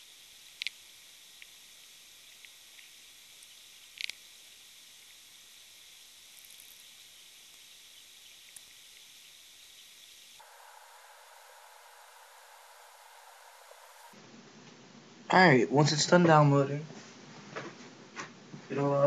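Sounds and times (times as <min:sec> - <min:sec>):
faint ticks: 0:00.0 - 0:14.2
background hiss: 0:00.0 - 0:19.0.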